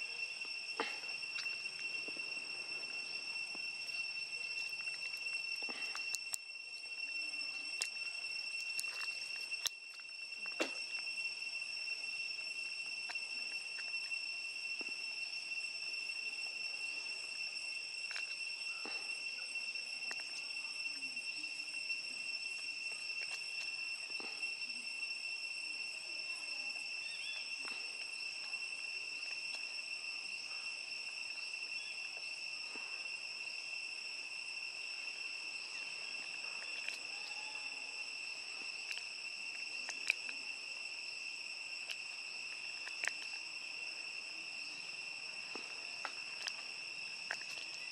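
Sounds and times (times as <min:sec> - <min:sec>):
insect chorus drone: 0:00.0 - 0:47.9
faint ticks: 0:41.8 - 0:43.5.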